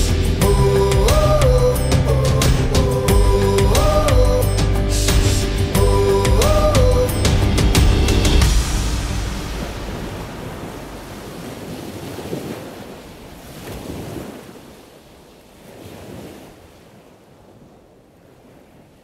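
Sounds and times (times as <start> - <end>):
ocean waves washing: 0.0 - 19.0
wind: 0.0 - 19.0.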